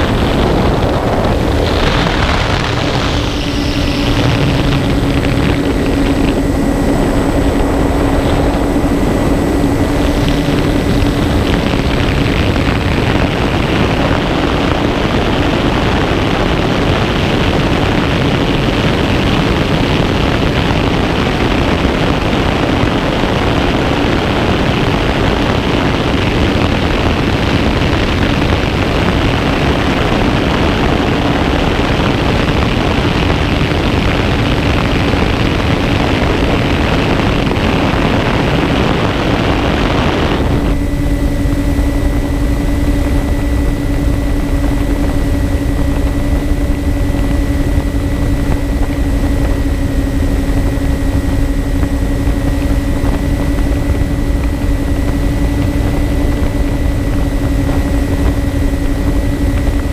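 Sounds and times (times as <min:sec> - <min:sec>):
loud wind rush: 0:00.0 - 0:59.9
low rumble: 0:00.0 - 0:59.9
propellers humming: 0:00.0 - 0:59.9
thin high whine: 0:00.0 - 0:59.9.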